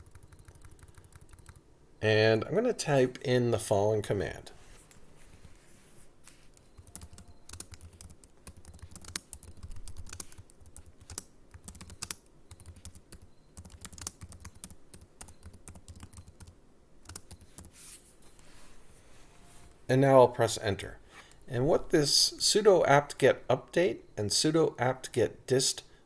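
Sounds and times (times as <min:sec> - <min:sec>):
computer keyboard typing: 0:00.0 - 0:01.6, 0:06.3 - 0:18.1.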